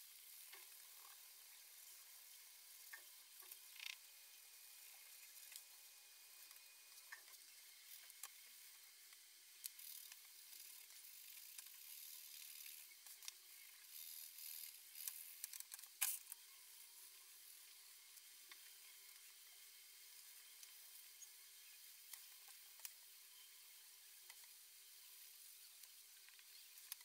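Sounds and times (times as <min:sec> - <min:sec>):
quiet hiss: 0:00.0 - 0:27.0
small clicks: 0:09.1 - 0:16.4, 0:22.1 - 0:23.0, 0:25.8 - 0:27.0.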